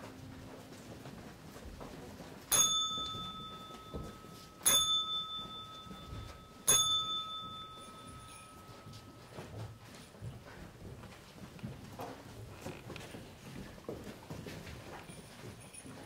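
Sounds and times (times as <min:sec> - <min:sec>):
small bell ringing: 0:02.5 - 0:10.0.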